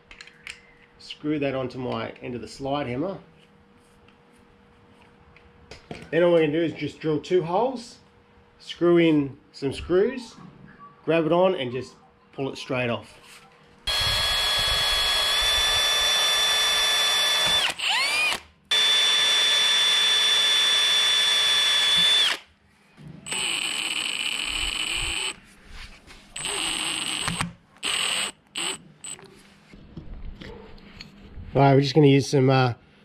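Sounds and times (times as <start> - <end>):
cordless drill drilling into metal: 13.9 - 22.5, 23.3 - 25.4, 26.4 - 29.2.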